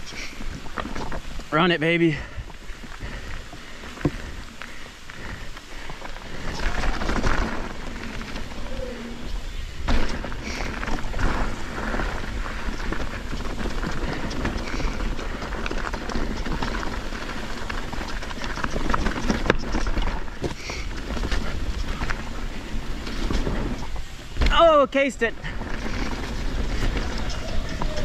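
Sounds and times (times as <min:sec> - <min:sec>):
bike tyres rumbling on dirt: 0:00.0 - 0:28.0
bike clattering over bumps: 0:02.2 - 0:28.0
wind on microphone: 0:25.4 - 0:28.0.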